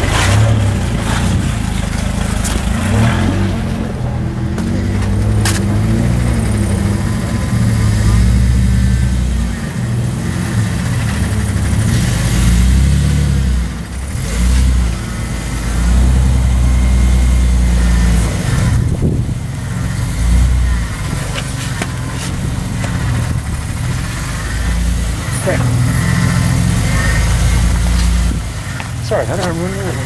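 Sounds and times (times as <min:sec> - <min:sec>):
truck engine working hard: 0:00.0 - 0:30.0.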